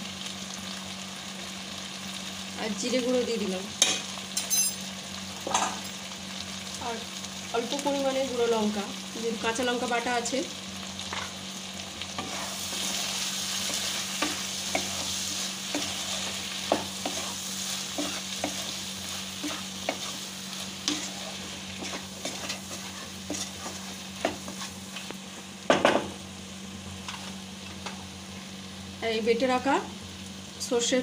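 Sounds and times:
food sizzling in oil: 0.0 - 31.0
spatula scraping a pan: 12.2 - 25.1.

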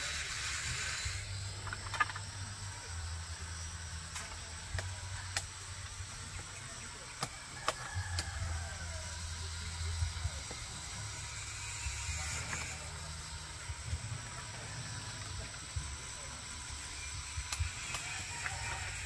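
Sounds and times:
sickle blade chopping stalk: 7.1 - 8.3.

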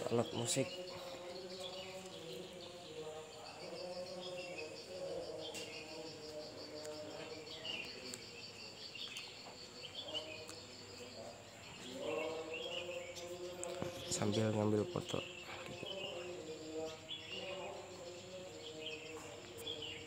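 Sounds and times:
bird chirps: 0.0 - 20.0
insect trilling: 0.0 - 20.0.

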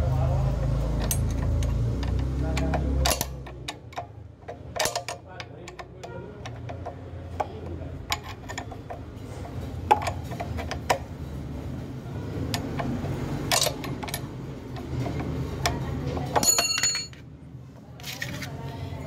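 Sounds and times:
spanners clicking against bolt: 0.9 - 11.1, 12.5 - 17.2.

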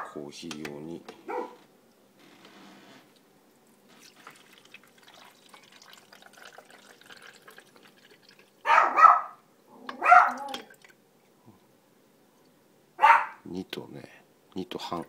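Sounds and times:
dog barking: 1.3 - 1.6, 8.6 - 10.7, 13.0 - 13.4
water trickling from kettle: 3.9 - 8.6, 10.4 - 11.0.

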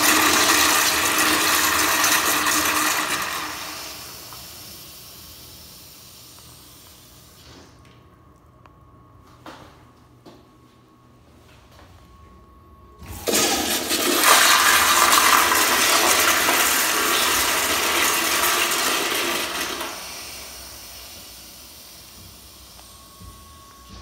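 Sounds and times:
toilet flushing: 0.0 - 5.0, 13.0 - 22.1.

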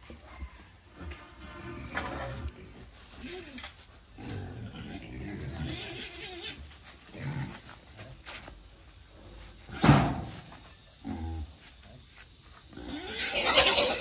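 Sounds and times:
wild boar crying out: 4.6 - 6.7, 12.8 - 14.0.

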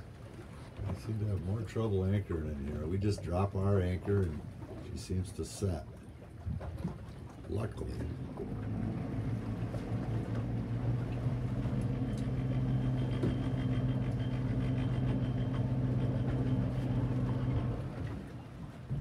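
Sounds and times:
engine humming: 7.6 - 19.0.

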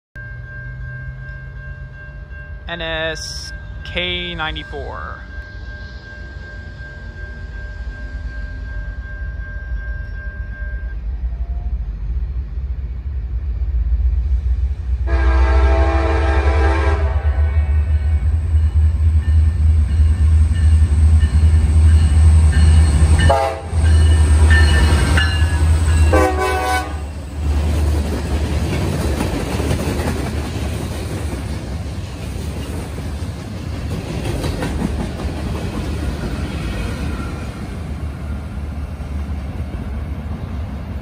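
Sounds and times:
train horn: 15.0 - 18.3, 23.2 - 24.0, 26.1 - 27.1.

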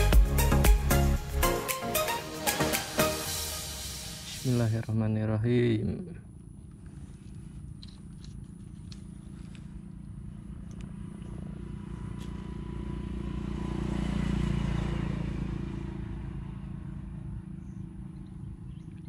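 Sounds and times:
engine passing by: 9.2 - 19.0.

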